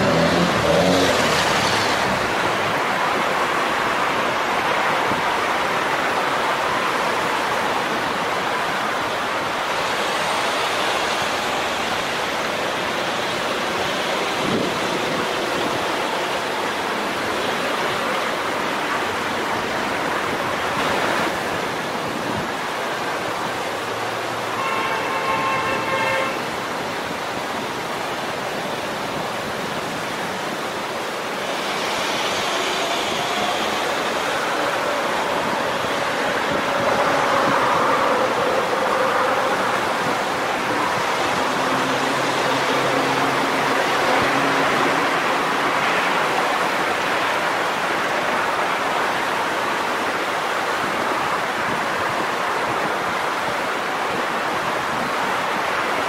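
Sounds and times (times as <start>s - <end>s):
heavy vehicle engine hum: 0.0s - 5.2s, 27.9s - 47.9s
creek water rushing: 0.0s - 56.0s
road traffic: 0.0s - 56.0s.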